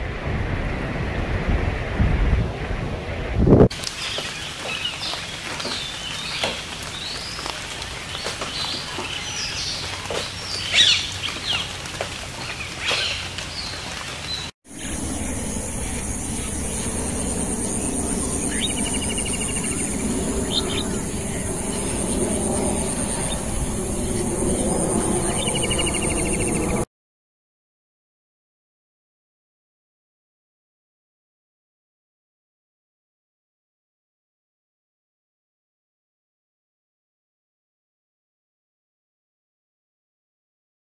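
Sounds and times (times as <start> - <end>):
outdoor hiss: 3.7 - 17.8
birds chirping: 3.8 - 26.8
low rumble: 14.7 - 26.9.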